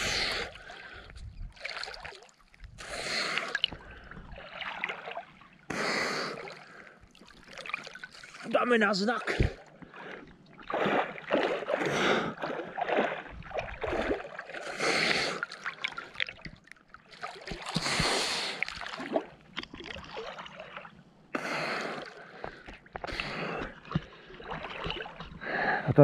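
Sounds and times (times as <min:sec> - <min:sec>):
person breathing hard: 0:00.0 - 0:01.2, 0:02.8 - 0:04.3, 0:05.7 - 0:07.0, 0:11.7 - 0:12.5, 0:14.6 - 0:15.5, 0:17.8 - 0:18.7, 0:21.3 - 0:24.4, 0:25.4 - 0:25.9
water splashing from swimming strokes: 0:00.0 - 0:25.6.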